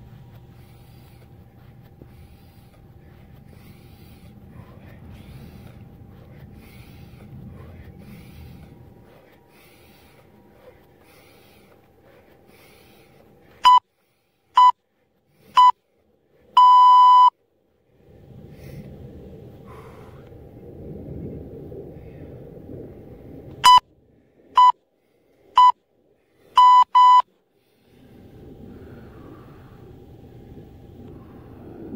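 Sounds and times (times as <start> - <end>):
interval timer beeping: 13.6 - 13.8, 14.6 - 14.8, 15.6 - 15.8, 16.6 - 17.3, 26.6 - 27.2.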